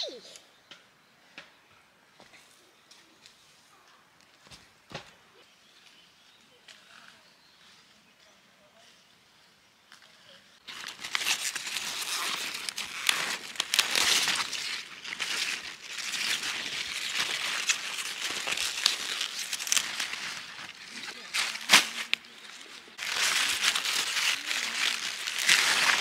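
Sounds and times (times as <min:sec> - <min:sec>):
leafy greens rustling and crackling: 0:10.0 - 0:26.0.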